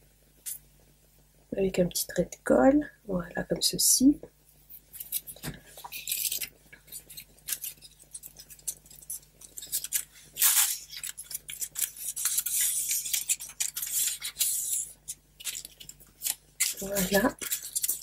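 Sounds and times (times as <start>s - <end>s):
paper rustling and crackling: 4.8s - 18.0s.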